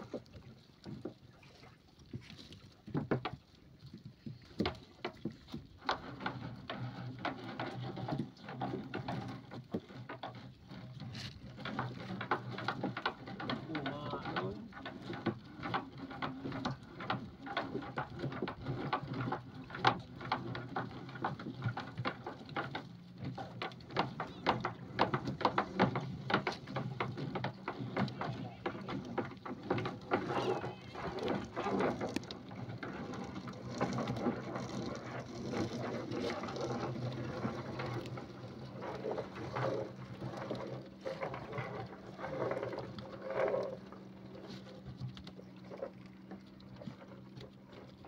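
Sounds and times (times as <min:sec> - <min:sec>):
net and fish knocking on boat: 0:11.1 - 0:38.7.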